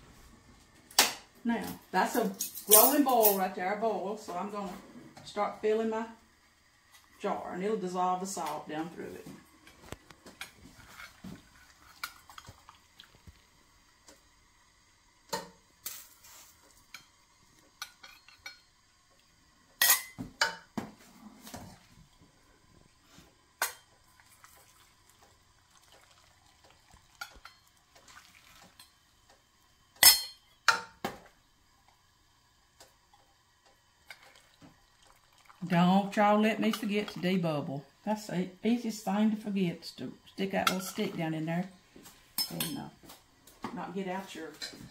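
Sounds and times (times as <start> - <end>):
metal clinking against glass jars: 2.1 - 3.4
liquid pouring: 9.5 - 14.0, 24.0 - 29.2, 33.0 - 37.1.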